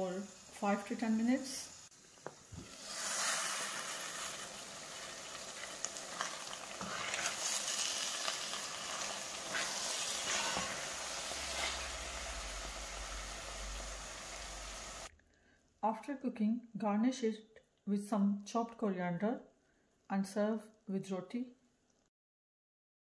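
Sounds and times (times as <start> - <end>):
food sizzling in a pot: 0.0 - 15.1
wooden spoon scraping a pot: 5.6 - 12.2.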